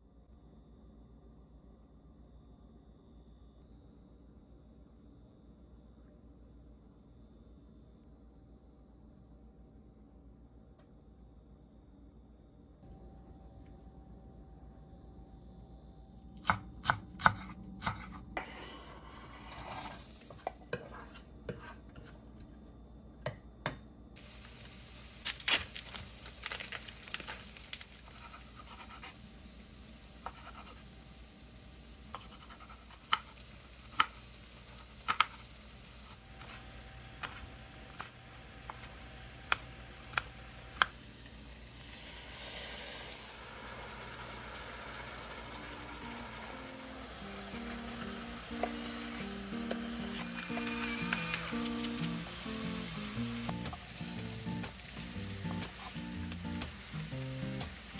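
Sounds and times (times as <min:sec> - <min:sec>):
faint steady hiss: 0:24.1 - 0:57.9
utensils clicking on cookware: 0:48.6 - 0:52.8.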